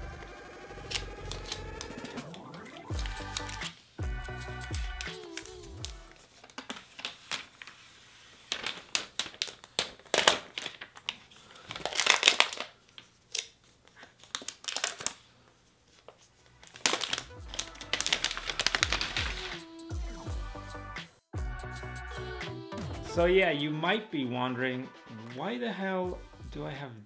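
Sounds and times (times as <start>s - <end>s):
packaging crinkling: 0.7s - 3.9s, 4.6s - 19.7s.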